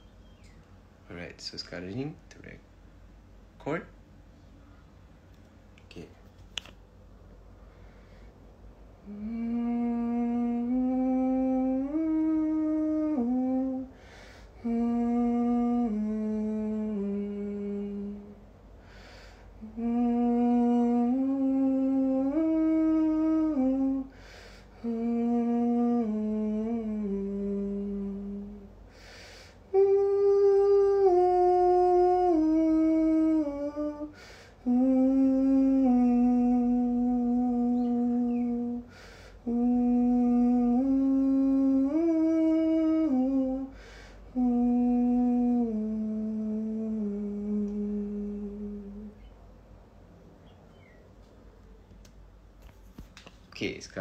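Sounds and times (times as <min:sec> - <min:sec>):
breaths: 0:07.6 - 0:08.5, 0:13.9 - 0:14.6, 0:18.8 - 0:19.6, 0:24.1 - 0:24.8, 0:28.9 - 0:29.7, 0:34.1 - 0:34.6, 0:38.8 - 0:39.5, 0:43.7 - 0:44.3
man humming: 0:09.0 - 0:14.0, 0:14.6 - 0:18.4, 0:19.6 - 0:28.8, 0:29.7 - 0:49.3.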